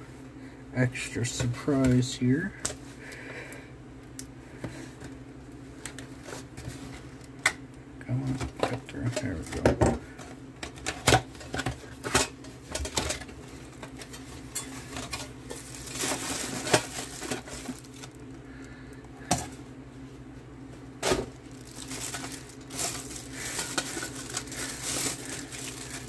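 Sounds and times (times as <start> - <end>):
plastic wrap crinkling: 13.9 - 18.3, 21.0 - 26.0.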